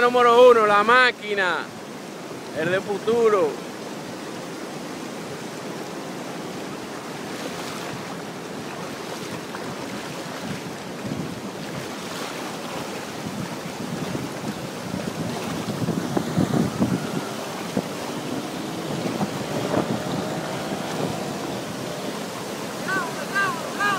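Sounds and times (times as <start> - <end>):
floodwater rushing: 0.0 - 23.9
wind on microphone: 7.2 - 23.9.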